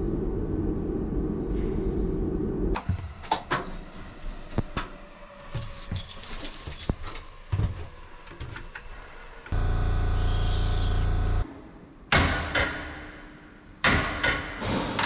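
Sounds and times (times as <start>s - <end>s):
equipment hum and whine: 0.0s - 3.1s, 7.7s - 11.9s
metallic jingle: 5.5s - 7.2s.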